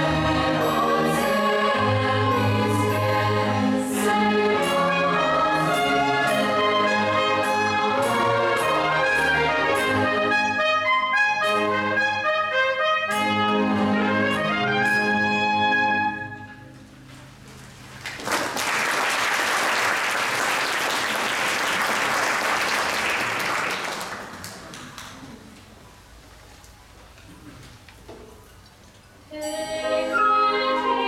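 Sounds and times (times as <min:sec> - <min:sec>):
orchestra with brass playing: 0:00.0 - 0:16.8
audience applause: 0:18.0 - 0:25.4.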